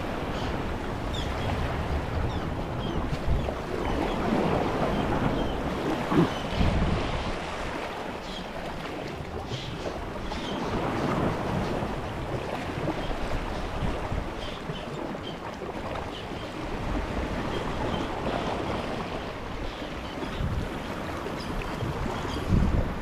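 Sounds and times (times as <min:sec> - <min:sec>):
wind buffeting microphone: 0:00.0 - 0:23.0.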